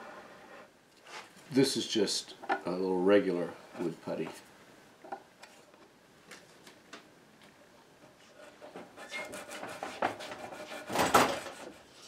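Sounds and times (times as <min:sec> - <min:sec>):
blade scraping wood: 0:08.2 - 0:12.0.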